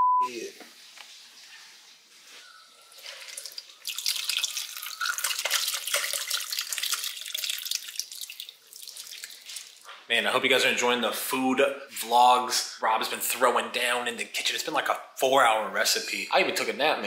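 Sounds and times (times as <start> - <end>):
liquid pouring through strainer: 2.9 - 9.8.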